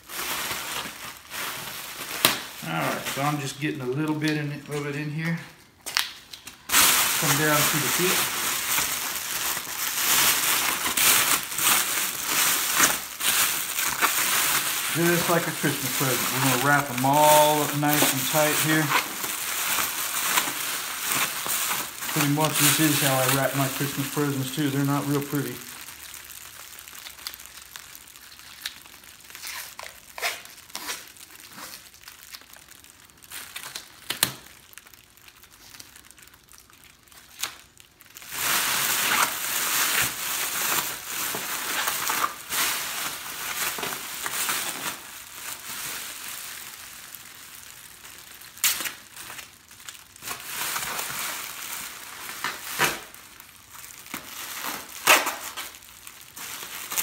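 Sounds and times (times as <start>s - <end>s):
survival blanket crinkling: 6.7s - 57.0s.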